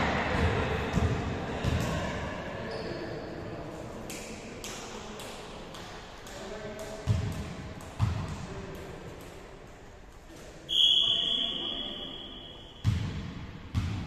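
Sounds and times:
referee's whistle blast: 0:10.7 - 0:12.8.

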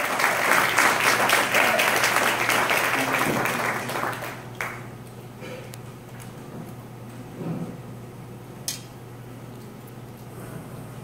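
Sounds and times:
audience applauding: 0:00.0 - 0:04.9.

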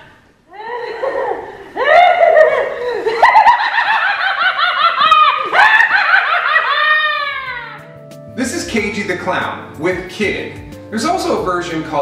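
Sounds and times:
maniacal clown cackle: 0:01.8 - 0:08.0.

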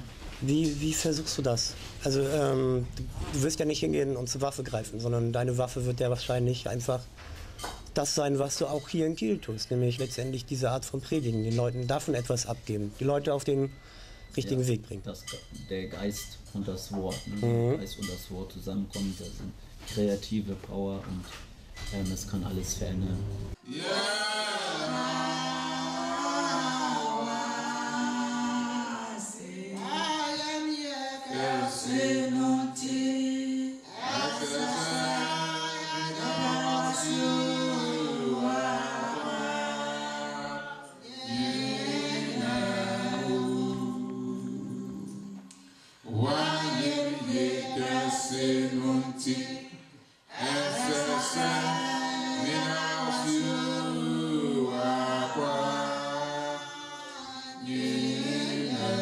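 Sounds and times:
voices singing a hymn unaccompanied: 0:23.5 - 0:59.0.

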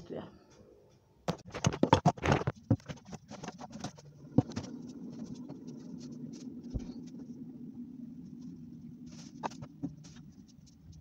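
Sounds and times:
phone knocking and rattling: 0:01.3 - 0:04.6
steady low hum: 0:02.5 - 0:11.0.

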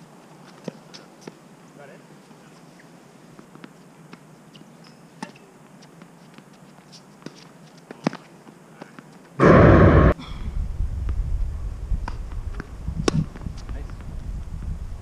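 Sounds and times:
tennis balls hit and bouncing: 0:04.8 - 0:09.1
sudden loud rush of noise: 0:09.4 - 0:10.2.

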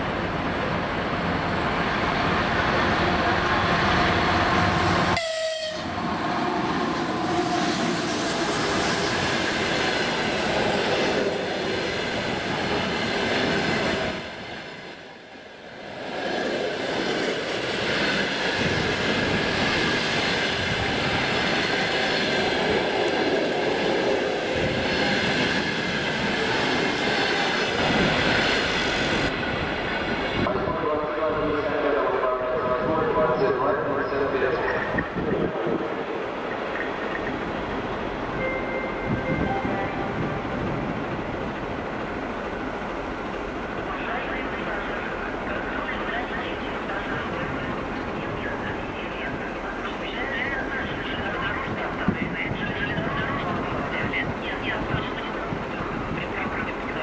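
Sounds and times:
train horn falling in pitch: 0:05.1 - 0:06.0.

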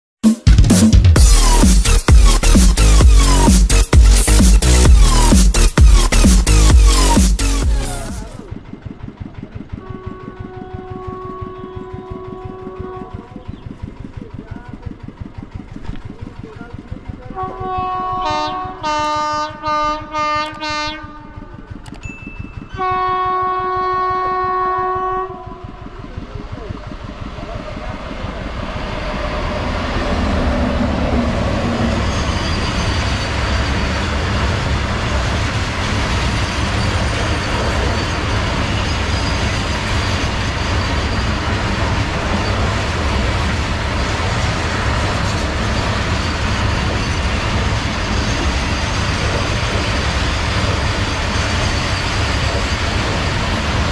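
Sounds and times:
freight train wagons rolling past: 0:08.2 - 0:53.9
locomotive horn blasts: 0:09.7 - 0:13.5, 0:17.3 - 0:21.7, 0:22.7 - 0:26.0.

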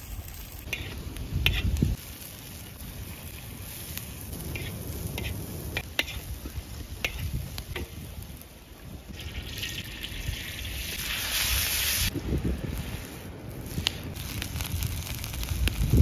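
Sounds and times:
food sizzling in a pan: 0:00.0 - 0:08.4, 0:09.1 - 0:12.2.

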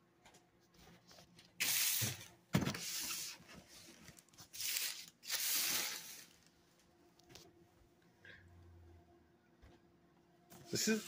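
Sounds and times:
packing tape ripping: 0:04.4 - 0:06.3.

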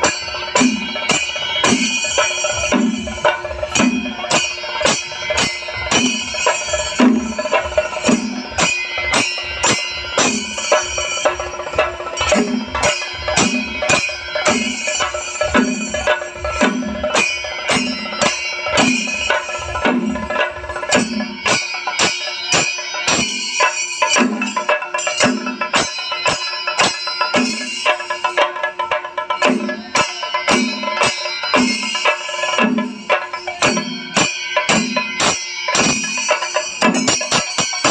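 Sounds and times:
drums beaten in fast rhythm: 0:00.0 - 0:37.9
ringing cymbals: 0:00.0 - 0:37.9.

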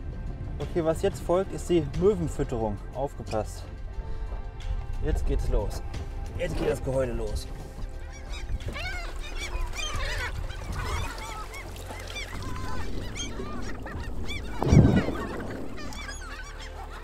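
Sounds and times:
gulls calling: 0:06.4 - 0:17.0
gull splashing into water: 0:08.3 - 0:17.0.

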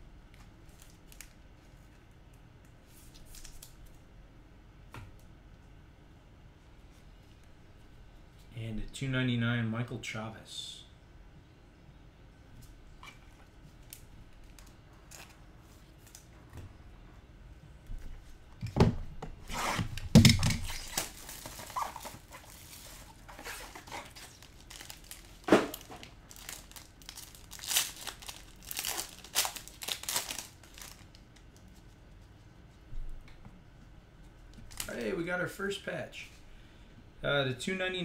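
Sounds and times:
packaging tearing and crinkling: 0:19.5 - 0:31.5, 0:34.6 - 0:35.0.

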